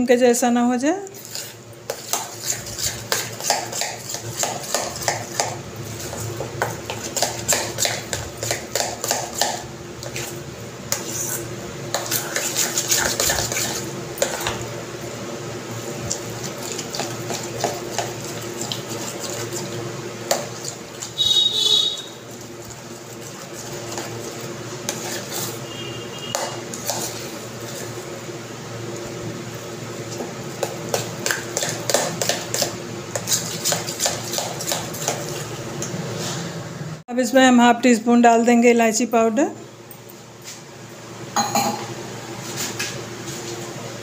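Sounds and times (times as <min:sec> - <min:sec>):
spoon scraping steel bowl: 0:01.2 - 0:14.5, 0:24.9 - 0:27.9.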